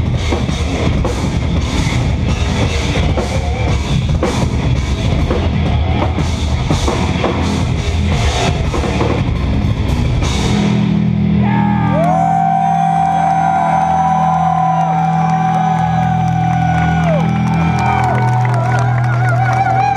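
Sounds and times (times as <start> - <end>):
drum kit: 0.0 - 12.2
live metal guitars: 0.0 - 18.2.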